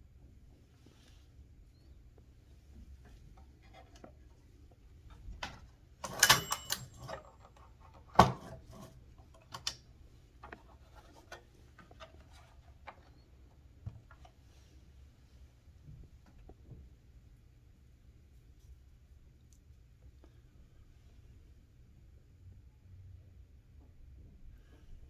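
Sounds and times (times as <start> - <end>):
typewriter carriage clacking and rattling: 6.0 - 7.4
short metallic ring: 6.2 - 7.0.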